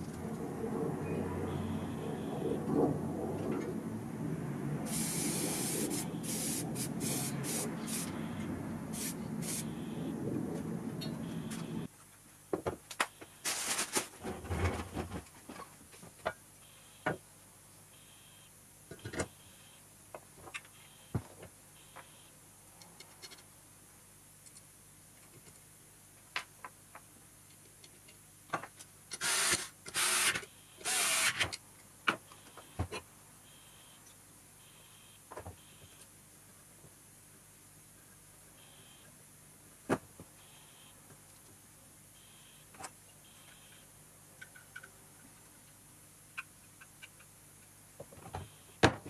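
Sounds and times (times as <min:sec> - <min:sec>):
rustling: 0:13.4 - 0:15.5.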